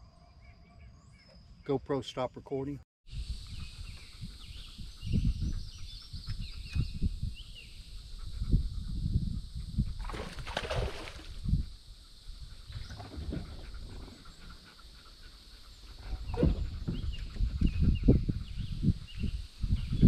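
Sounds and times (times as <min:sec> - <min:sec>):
songbirds chirping: 0:00.0 - 0:02.8, 0:03.4 - 0:08.9, 0:11.8 - 0:20.0
low rumbling thumps: 0:12.4 - 0:20.0.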